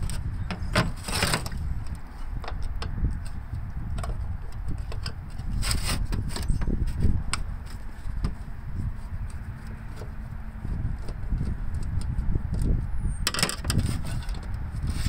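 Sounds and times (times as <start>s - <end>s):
wind rumble on microphone: 0.0s - 15.0s
metal scrape: 5.3s - 10.4s, 13.3s - 15.0s.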